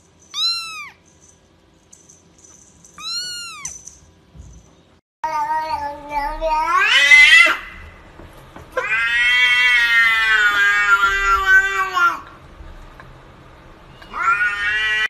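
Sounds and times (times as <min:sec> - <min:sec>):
cat meowing: 0:00.3 - 0:01.0, 0:03.0 - 0:03.8, 0:05.3 - 0:07.7, 0:08.8 - 0:12.2, 0:14.0 - 0:15.0.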